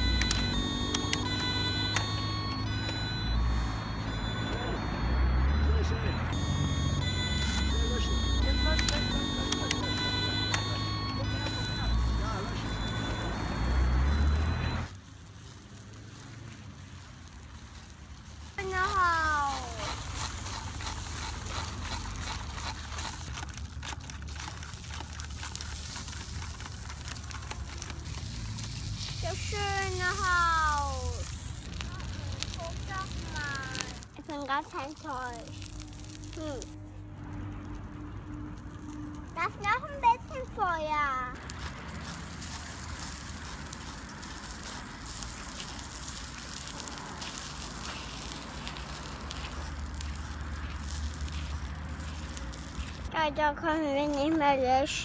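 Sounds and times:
paper fire crackling: 5.7 - 55.0.

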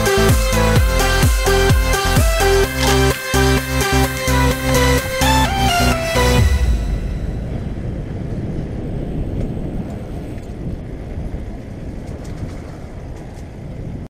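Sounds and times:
wind on microphone: 2.4 - 14.0
bike tyres rumbling on concrete: 7.6 - 14.0.

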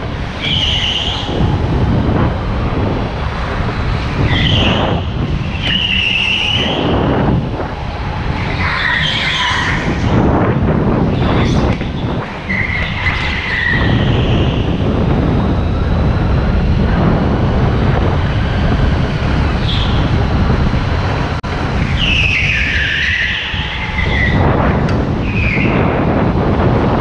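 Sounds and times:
go-kart engine drone: 0.0 - 27.0
tyres squealing: 0.3 - 1.6, 4.0 - 7.0, 8.3 - 10.2, 11.1 - 14.8, 21.8 - 24.4.

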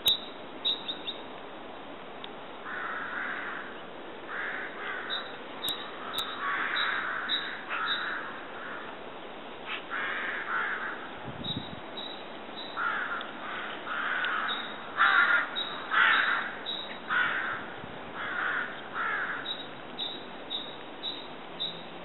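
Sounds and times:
crows cawing: 2.6 - 9.0, 9.6 - 11.1, 12.8 - 19.7.

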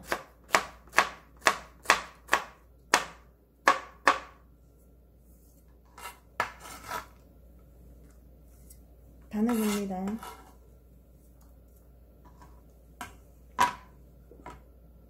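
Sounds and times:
knife chopping on cutting board: 0.0 - 4.4, 6.0 - 7.1.

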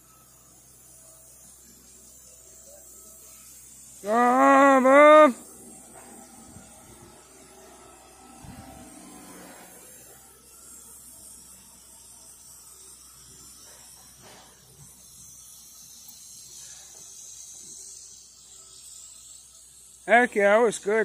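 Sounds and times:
high-pitched hiss: 0.0 - 21.0.

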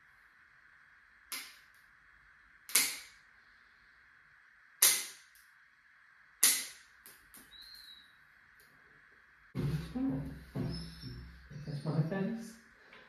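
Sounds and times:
nail clippers snapping: 2.7 - 3.1, 6.4 - 7.4.

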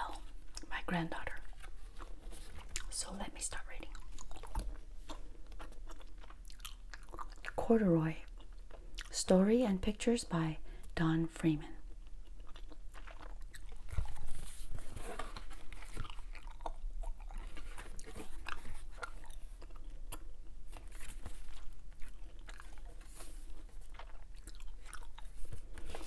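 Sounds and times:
gum chewing wet smacks: 4.0 - 7.6, 12.1 - 14.5, 15.7 - 20.6, 21.5 - 25.5.

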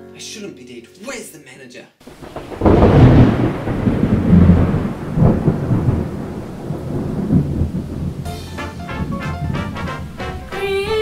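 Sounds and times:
thunder clap and rumble: 2.1 - 10.3.

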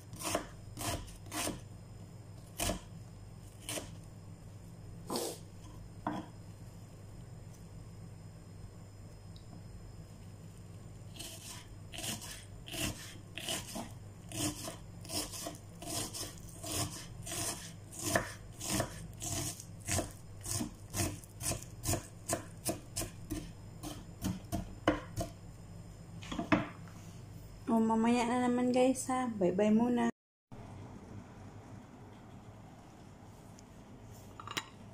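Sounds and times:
knife chopping on wooden board: 0.1 - 1.6, 2.6 - 2.8, 11.2 - 25.4.

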